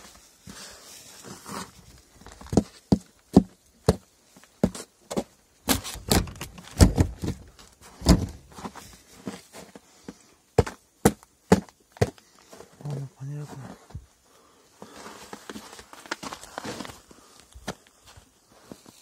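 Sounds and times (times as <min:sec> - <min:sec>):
footsteps on snow: 0:07.6 - 0:10.8, 0:14.8 - 0:19.0.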